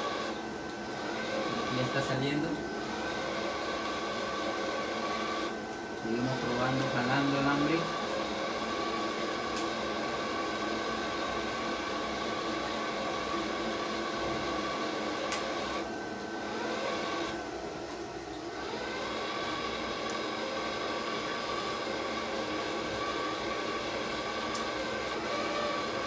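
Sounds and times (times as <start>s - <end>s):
wire-feed motor whining: 0.0s - 26.0s
torch trigger click: 9.5s - 9.8s, 15.2s - 15.6s, 24.5s - 24.8s.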